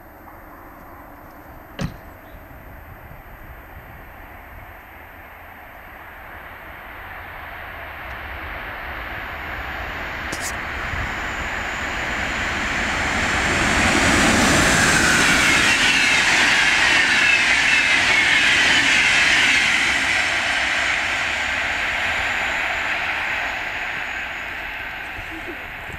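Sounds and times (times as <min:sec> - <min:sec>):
train wheels rushing on rails: 0:05.8 - 0:25.9
train whine falling in pitch: 0:10.0 - 0:25.9.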